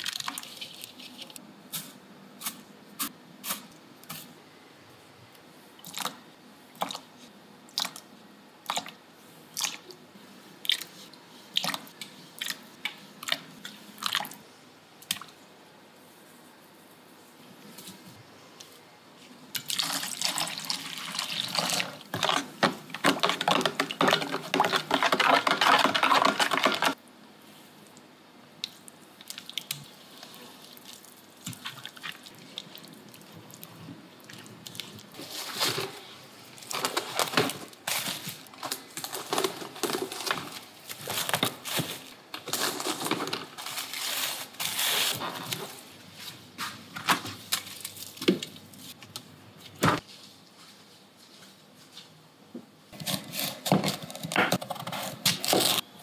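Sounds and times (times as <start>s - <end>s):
batter stirred in a steel bowl: 19.7s - 27.0s.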